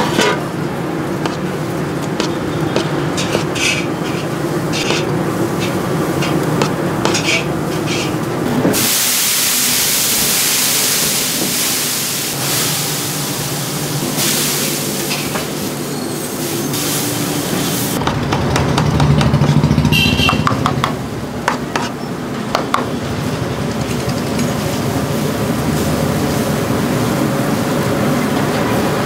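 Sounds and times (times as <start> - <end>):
water hissing on hot griddle: 3.2 - 18.0.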